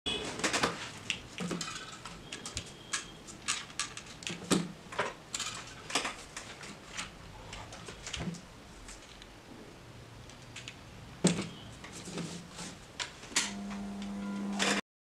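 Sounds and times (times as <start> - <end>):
plastic toy clicks and knocks: 0.4 - 7.1.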